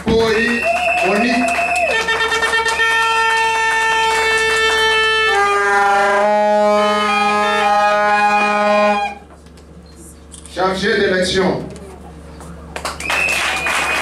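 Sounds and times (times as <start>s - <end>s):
plastic trumpet horns blasting: 1.9s - 9.3s.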